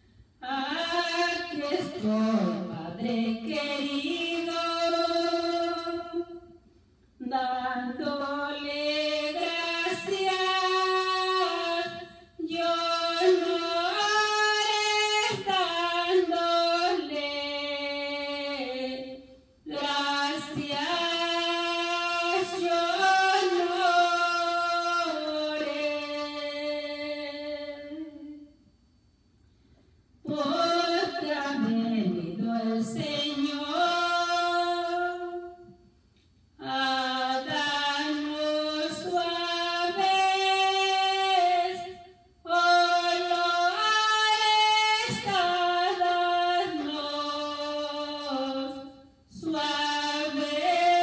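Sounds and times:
woman singing unaccompanied: 0:00.4 - 0:06.6, 0:07.2 - 0:28.5, 0:30.2 - 0:35.8, 0:36.6 - 0:51.0.

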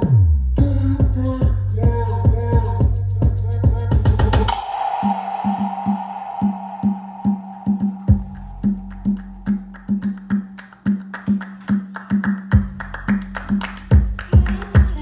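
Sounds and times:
deep bass line: 0:00.0 - 0:04.6, 0:07.7 - 0:10.6, 0:12.5 - 0:15.0
electronic pop song: 0:00.0 - 0:11.8, 0:12.5 - 0:15.0.

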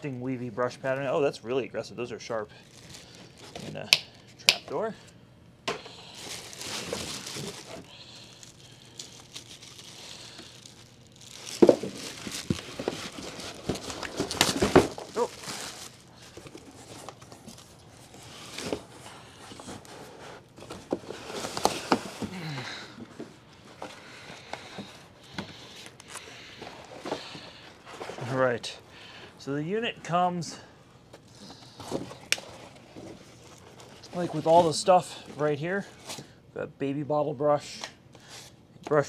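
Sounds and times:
packaging crinkling: 0:02.6 - 0:04.2, 0:05.9 - 0:22.6.

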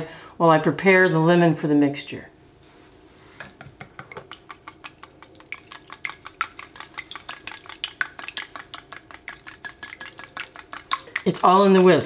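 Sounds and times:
whisk clinking against ceramic bowl: 0:03.4 - 0:12.0.

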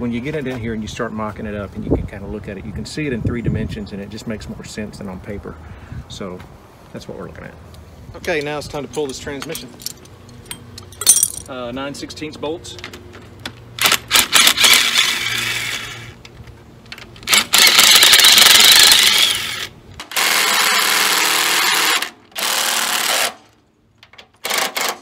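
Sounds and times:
impact driver hammering rattle: 0:24.4 - 0:25.0.

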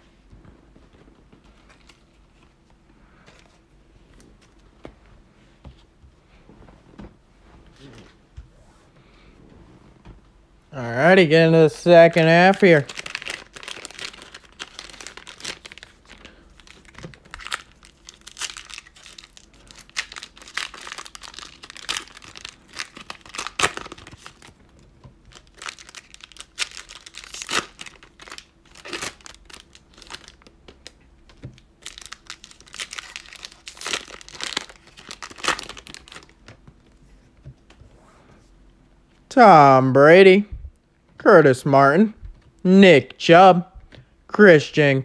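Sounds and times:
plastic wrappers torn and crinkled: 0:12.1 - 0:24.6, 0:25.2 - 0:36.4.

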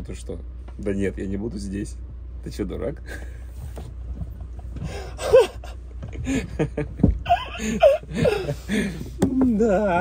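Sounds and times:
steady low hum: 0:00.0 - 0:10.0
men laughing hard: 0:04.9 - 0:09.2.

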